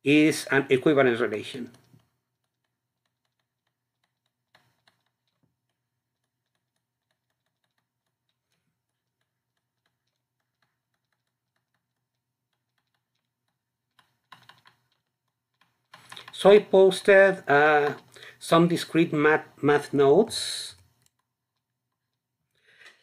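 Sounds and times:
stylus tapping on a tablet screen: 0:01.7 - 0:16.6.

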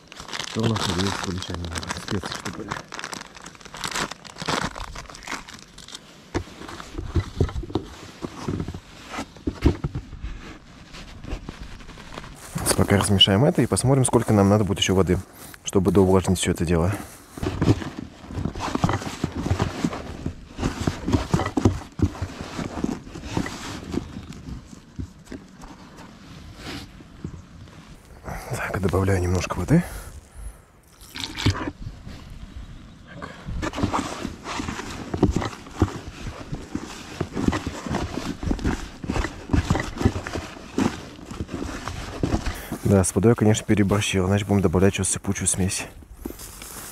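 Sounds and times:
hands kneading bait in a bucket: 0:00.0 - 0:27.2
hands mixing groundbait in bucket: 0:30.0 - 0:31.8.

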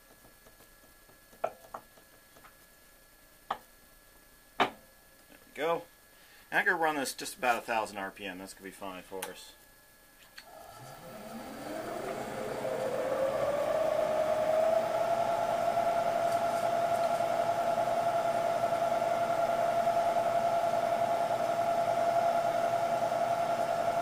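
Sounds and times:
milling machine spindle whine: 0:10.4 - 0:24.0.

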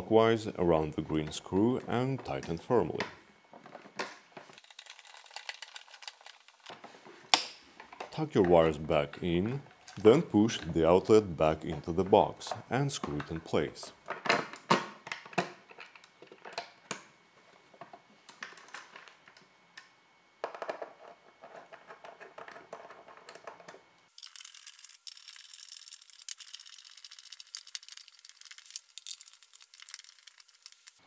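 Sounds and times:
wires rustling and scraping: 0:03.5 - 0:07.2, 0:24.2 - 0:31.0
thin hiss with small ticks: 0:24.2 - 0:31.0.

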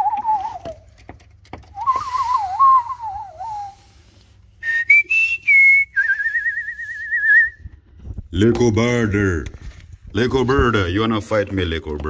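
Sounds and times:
person whistling: 0:00.0 - 0:00.9, 0:01.7 - 0:07.7.

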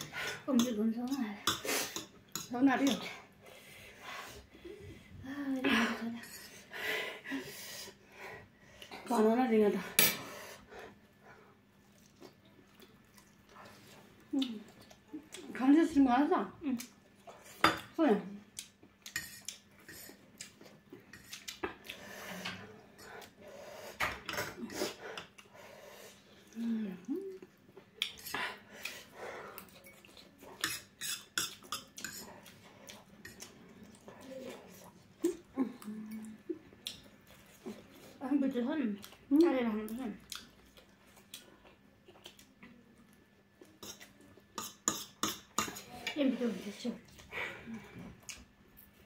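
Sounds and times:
woman's voice: 0:09.1 - 0:10.0, 0:45.9 - 0:47.0
eating sounds: 0:38.9 - 0:49.0.

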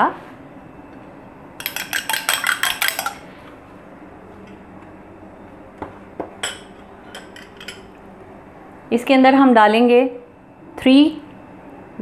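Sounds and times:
spoon clinking on glass bowl: 0:01.6 - 0:03.2, 0:06.4 - 0:07.9.

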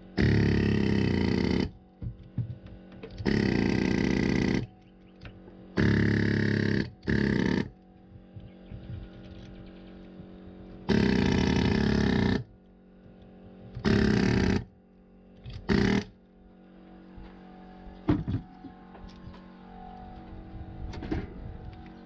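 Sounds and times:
pneumatic air hammer firing: 0:00.2 - 0:01.7, 0:03.2 - 0:04.7, 0:05.8 - 0:07.7, 0:10.9 - 0:12.5, 0:13.8 - 0:14.7, 0:15.5 - 0:16.1.

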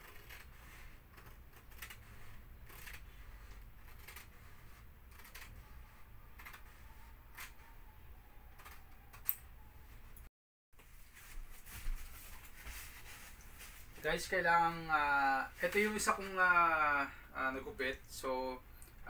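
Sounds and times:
scissors snipping film: 0:05.1 - 0:05.6, 0:08.6 - 0:09.5.

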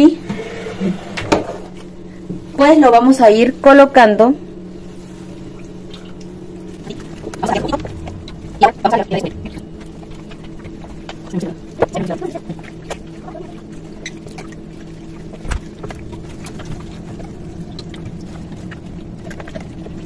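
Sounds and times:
low machine hum: 0:00.0 - 0:20.0
wet handling sounds: 0:04.8 - 0:20.0.

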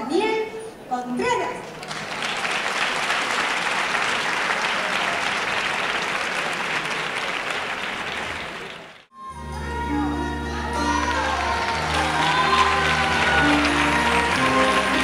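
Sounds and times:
audience applauding: 0:01.8 - 0:09.1, 0:11.0 - 0:15.0.

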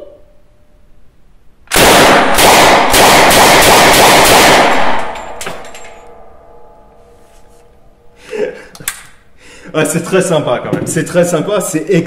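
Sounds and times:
submachine gun automatic burst: 0:01.7 - 0:05.2
sharp click: 0:08.7 - 0:09.2.

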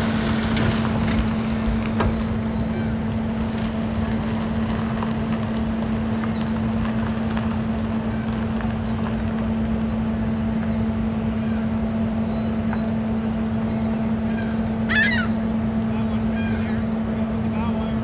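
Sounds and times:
constant low rumble: 0:00.0 - 0:18.0
ship machinery hum: 0:00.0 - 0:18.0
loud high-pitched call: 0:14.3 - 0:15.4.

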